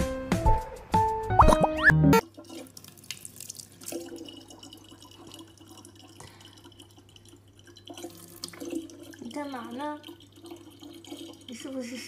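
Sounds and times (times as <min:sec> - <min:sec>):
cat pawing splashing water: 0:02.2 - 0:11.7
water trickling into plastic bottle: 0:02.2 - 0:12.0.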